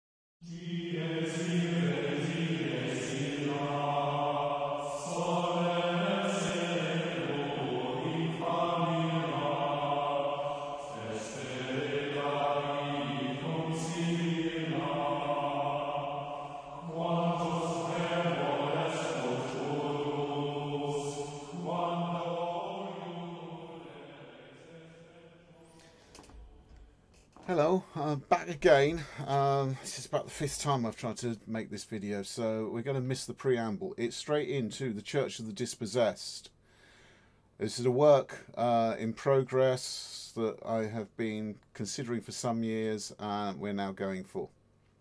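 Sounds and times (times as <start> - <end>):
chanted vocal music: 0.4 - 31.3
low drone: 0.6 - 25.9.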